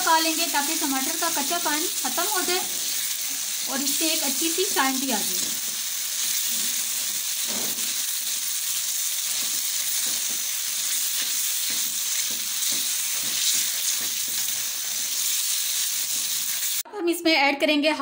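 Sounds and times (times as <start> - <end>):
tomatoes sizzling in a frying pan: 0.0 - 16.8
spatula scraping a pan: 5.6 - 16.8.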